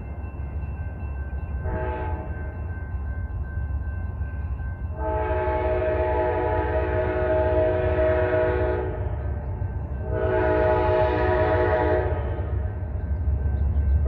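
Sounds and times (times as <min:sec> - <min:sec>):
train rumble: 0:00.0 - 0:14.0
train air horn chord: 0:01.6 - 0:02.3, 0:05.0 - 0:09.1, 0:10.0 - 0:12.6.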